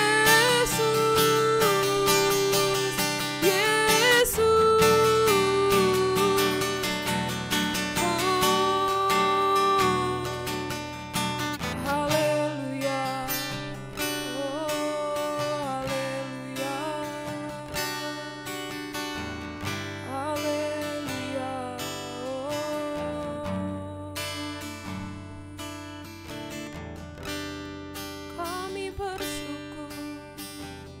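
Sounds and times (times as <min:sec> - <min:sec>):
woman singing: 0:00.0 - 0:26.6, 0:28.2 - 0:31.0
strummed acoustic guitar: 0:00.0 - 0:31.0.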